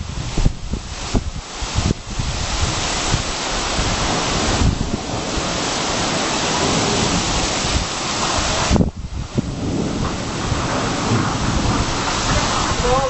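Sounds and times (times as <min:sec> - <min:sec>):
heavy rain hissing: 0:00.0 - 0:13.0
wind buffeting microphone: 0:00.0 - 0:13.0.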